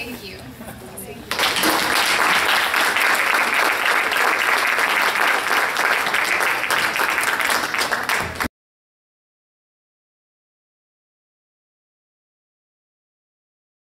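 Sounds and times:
audience applauding: 0:01.3 - 0:08.5.

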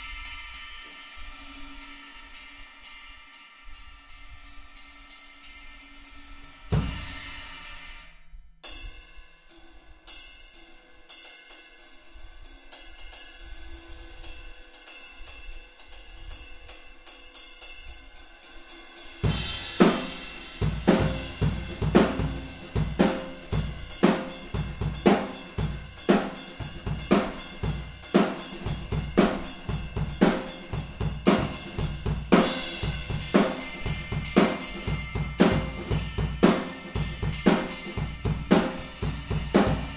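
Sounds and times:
drum kit groove: 0:06.2 - 0:07.8, 0:11.8 - 0:39.9
ride cymbal ringing: 0:10.1 - 0:39.9.

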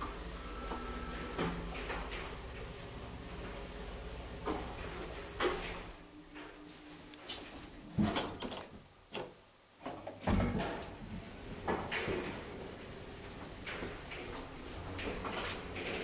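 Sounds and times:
elevator doors clunking and clicking: 0:00.0 - 0:06.7, 0:07.9 - 0:16.0.

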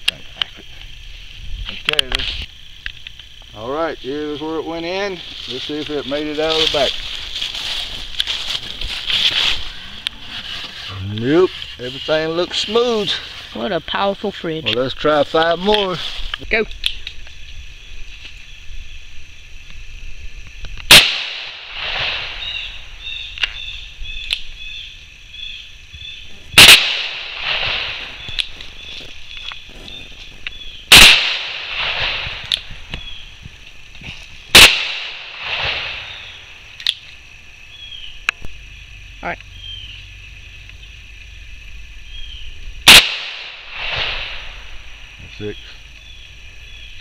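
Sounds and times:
gunshot echo: 0:20.9 - 0:22.7, 0:26.6 - 0:28.3, 0:30.9 - 0:32.6, 0:34.5 - 0:36.4, 0:42.9 - 0:44.9
revolver gunshots: 0:20.9 - 0:22.7, 0:26.6 - 0:28.4, 0:30.9 - 0:32.5, 0:34.5 - 0:36.4, 0:42.9 - 0:44.8.

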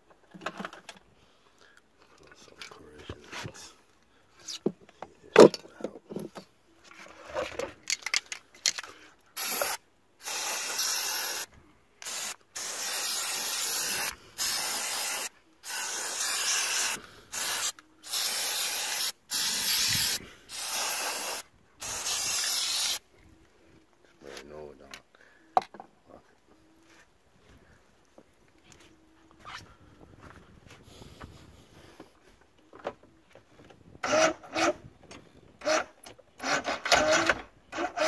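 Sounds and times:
clicks and knocks handling can: 0:07.2 - 0:08.9
aerosol spray hissing: 0:09.4 - 0:23.0.

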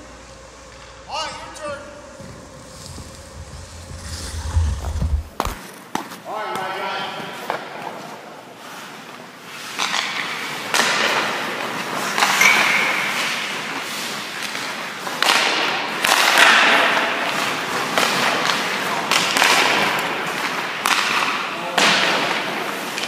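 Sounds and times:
skate blades scraping ice: 0:02.2 - 0:06.2
hockey sticks striking pucks: 0:09.5 - 0:23.0
pucks hitting goalie pads: 0:09.7 - 0:13.4, 0:14.4 - 0:23.0.

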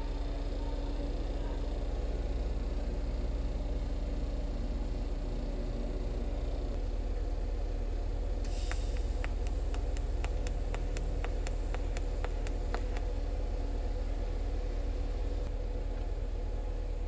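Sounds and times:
welder humming: 0:08.4 - 0:13.3
sharp ticks: 0:08.5 - 0:13.1.

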